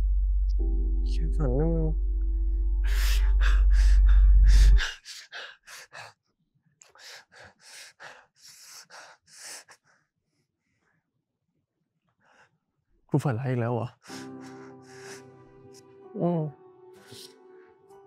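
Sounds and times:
deep droning music: 0:00.0 - 0:04.9, 0:14.1 - 0:18.0
man gasping and breathing hard: 0:02.9 - 0:06.2, 0:06.8 - 0:10.0.

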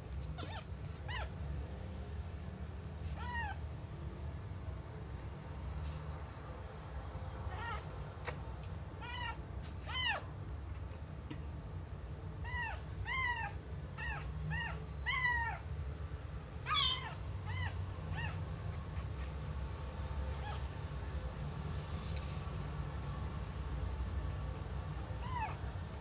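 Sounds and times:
kitten mewing: 0:03.1 - 0:03.6, 0:16.7 - 0:19.3.

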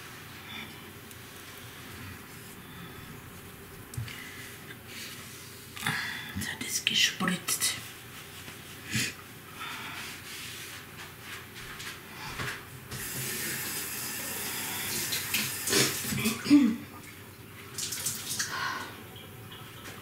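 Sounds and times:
kitchen tap running: 0:12.9 - 0:16.5.

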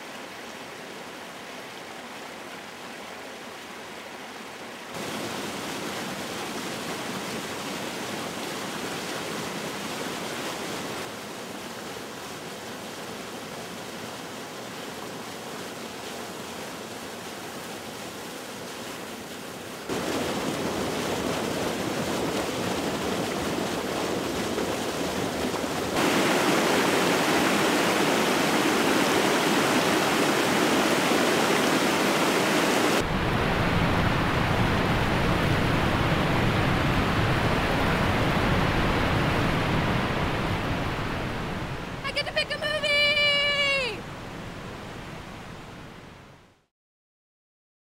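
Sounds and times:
water rushing over rock: 0:04.9 - 0:45.7.

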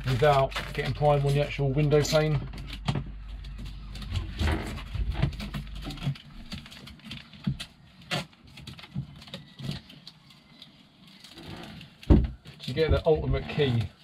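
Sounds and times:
plastic film crackling: 0:00.0 - 0:12.8.

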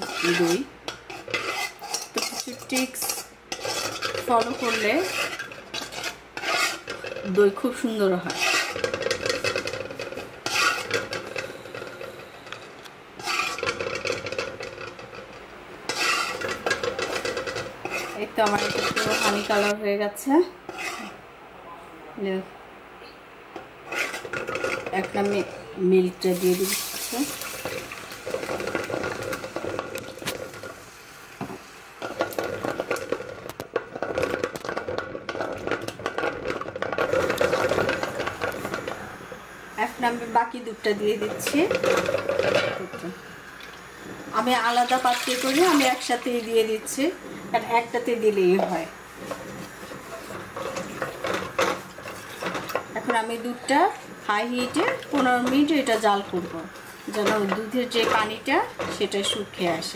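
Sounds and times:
metal spoon scraping pot: 0:00.0 - 0:15.3, 0:15.9 - 0:19.8, 0:20.7 - 0:21.2, 0:23.9 - 0:25.6, 0:47.2 - 0:59.8.

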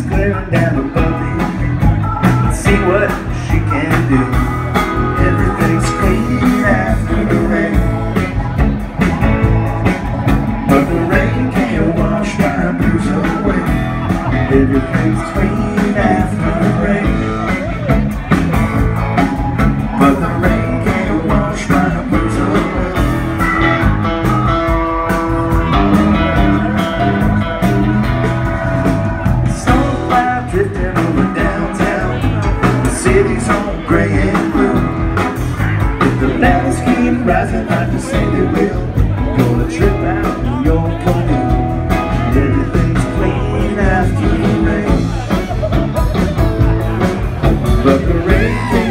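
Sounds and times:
bass guitar: 0:00.0 - 0:48.9
drum kit beat: 0:00.0 - 0:48.9
electric guitar: 0:00.0 - 0:48.9
keyboards: 0:00.0 - 0:48.9.

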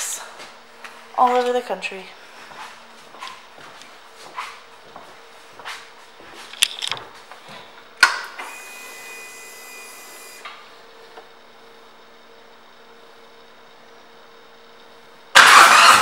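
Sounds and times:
fuel pump electric whine: 0:06.6 - 0:16.0.

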